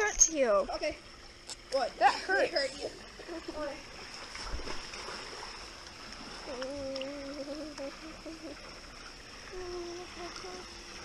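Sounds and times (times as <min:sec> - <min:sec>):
water lapping and sloshing: 0:00.0 - 0:11.0
voice-like hum: 0:06.4 - 0:08.8, 0:09.4 - 0:10.8
faint high whine: 0:06.4 - 0:11.0.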